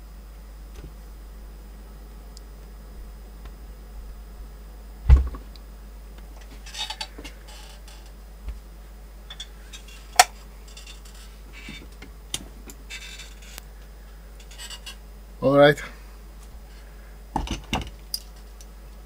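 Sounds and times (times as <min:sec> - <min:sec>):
steady low hum: 0:00.0 - 0:19.0
low thump on workbench: 0:05.0 - 0:05.4.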